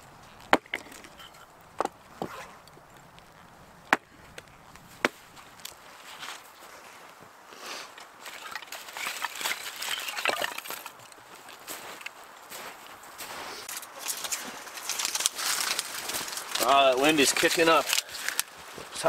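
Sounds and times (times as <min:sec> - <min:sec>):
sticks rustling and clattering: 0:00.2 - 0:07.2, 0:07.8 - 0:19.0
axe chopping wood: 0:00.4 - 0:01.2, 0:03.9 - 0:04.4, 0:05.0 - 0:05.4.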